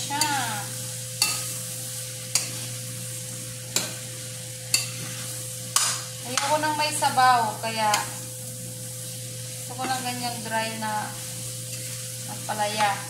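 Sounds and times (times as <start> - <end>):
food sizzling in a frying pan: 0.0 - 13.0
spoon clinking against pan: 1.2 - 1.5, 4.7 - 4.9.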